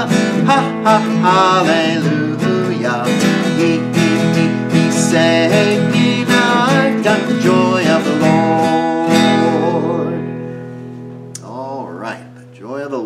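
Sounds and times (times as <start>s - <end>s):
man singing: 0.0s - 10.4s, 11.4s - 13.0s
strummed acoustic guitar: 0.0s - 13.0s.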